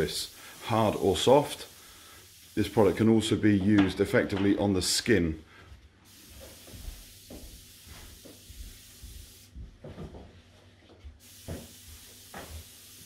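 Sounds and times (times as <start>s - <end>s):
spray gun hissing: 0.0s - 3.4s, 6.1s - 9.6s, 11.2s - 13.0s.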